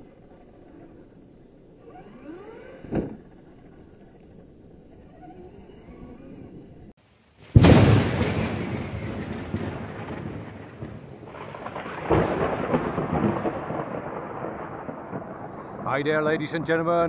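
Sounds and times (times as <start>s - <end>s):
thunder crack and rumbling: 7.5s - 17.0s.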